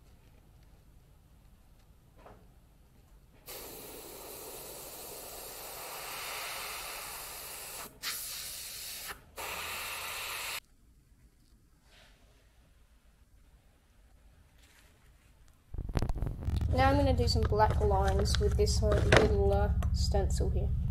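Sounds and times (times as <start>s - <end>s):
airbrush spraying hiss: 3.5s - 10.6s.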